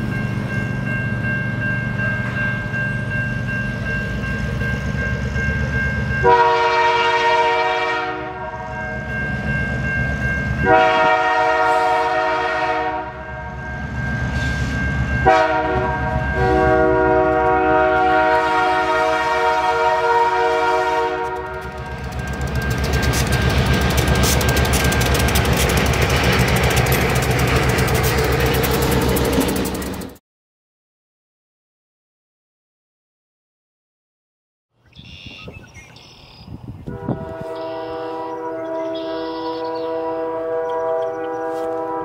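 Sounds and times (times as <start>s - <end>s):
locomotive air horn blasts: 6.2s - 9.0s, 10.6s - 13.6s, 15.2s - 22.2s, 36.8s - 42.0s
locomotive engine rumble: 8.4s - 30.2s
train wheels clattering: 21.2s - 30.2s.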